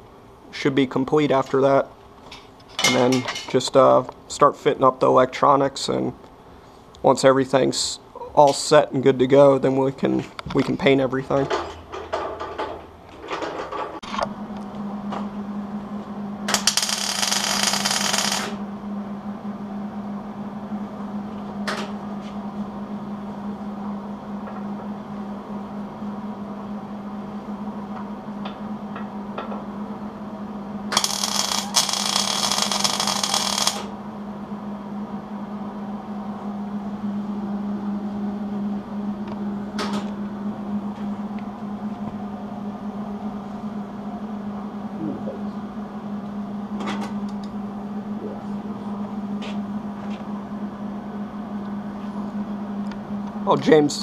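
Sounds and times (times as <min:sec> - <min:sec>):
steady low hum: 0:00.0 - 0:54.0
welding arc crackling and hissing: 0:16.5 - 0:18.6, 0:30.9 - 0:33.9.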